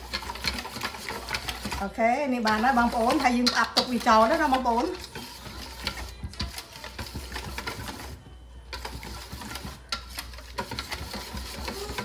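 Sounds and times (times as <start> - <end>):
utensils clicking and tapping: 0.0 - 12.0.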